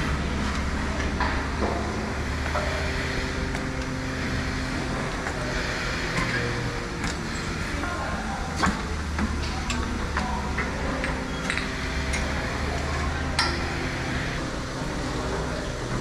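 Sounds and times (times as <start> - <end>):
machinery humming: 0.0 - 16.0
metallic clicks and clanks: 8.6 - 13.9.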